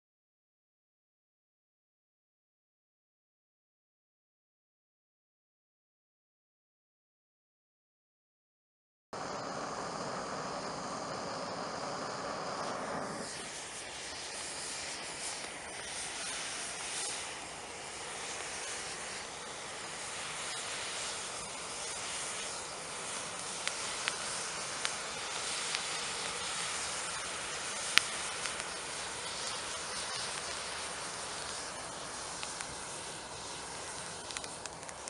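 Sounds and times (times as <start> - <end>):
smoke charge hissing: 9.2 - 35.0
sharp crackles: 10.0 - 35.0.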